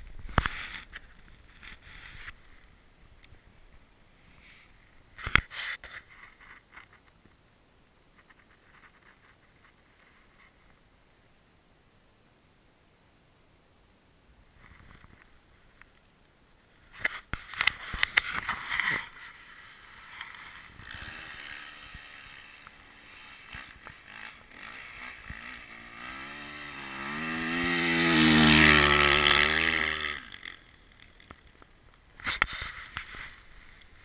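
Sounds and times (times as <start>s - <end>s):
motocross bike engine revving: 18.4s - 31.3s.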